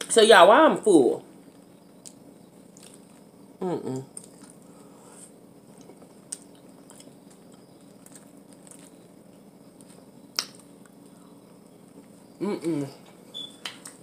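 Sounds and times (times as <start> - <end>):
faint steady hum: 0.0 - 14.0
soft chewing: 1.3 - 3.4, 4.0 - 12.4.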